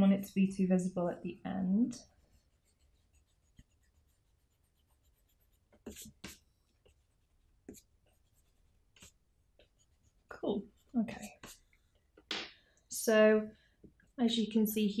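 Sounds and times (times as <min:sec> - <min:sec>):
eraser rubbing on paper: 0:02.1 - 0:11.8.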